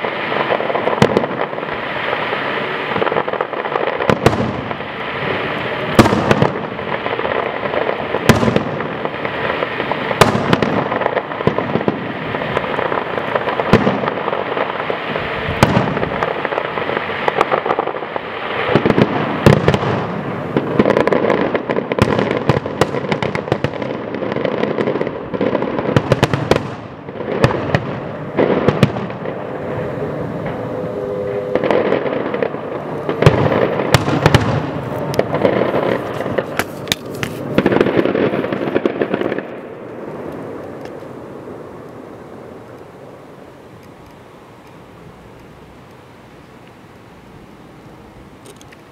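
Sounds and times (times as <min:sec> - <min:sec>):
firework shells bursting: 0:00.0 - 0:41.2
firework crackling: 0:00.0 - 0:48.9.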